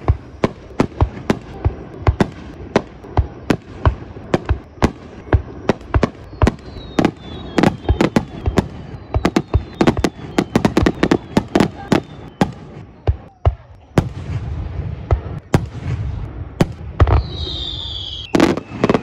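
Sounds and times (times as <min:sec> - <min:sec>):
high falling whistle: 0:06.2 - 0:12.6, 0:17.0 - 0:19.0.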